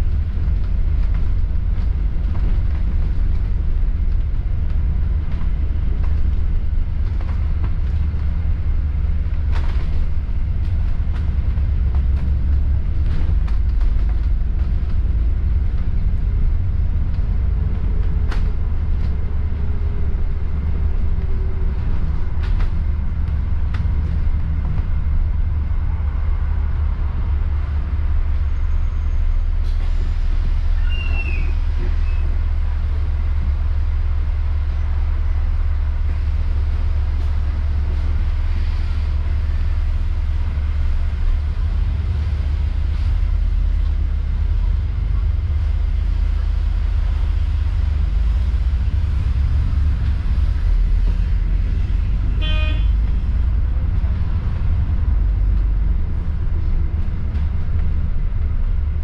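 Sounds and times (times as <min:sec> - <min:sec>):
bus engine and road rumble: 0:00.0 - 0:59.0
short horn toot: 0:52.4 - 0:53.1.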